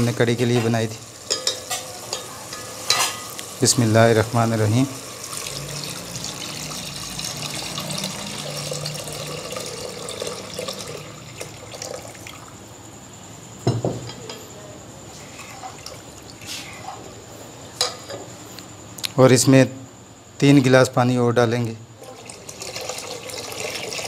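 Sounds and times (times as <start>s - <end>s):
liquid pouring into metal pot: 5.0s - 12.6s, 22.0s - 24.0s
knock: 13.7s - 14.2s.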